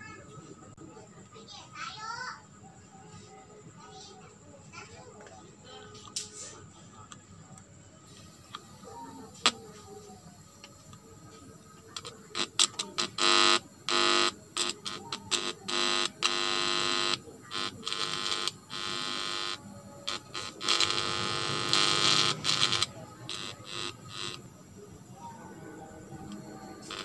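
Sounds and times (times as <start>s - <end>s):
crackling clicks: 8.4s - 9.9s, 12.0s - 24.5s, 26.2s - 27.0s
loud electrical buzz: 11.9s - 24.8s, 25.9s - 27.0s.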